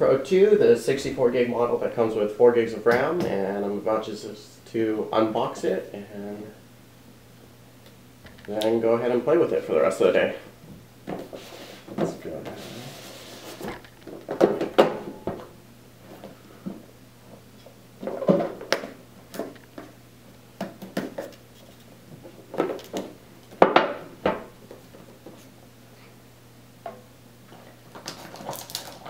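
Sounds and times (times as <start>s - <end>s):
cardboard box scraping and rubbing: 12.5s - 13.7s.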